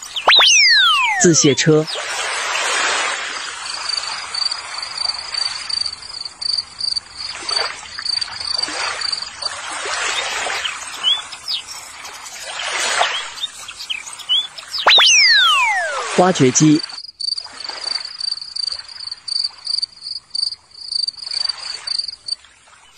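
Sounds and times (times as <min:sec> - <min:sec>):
bird chirping: 0:00.0 - 0:02.1, 0:08.0 - 0:17.3
insect trilling: 0:00.0 - 0:02.6, 0:03.6 - 0:22.4.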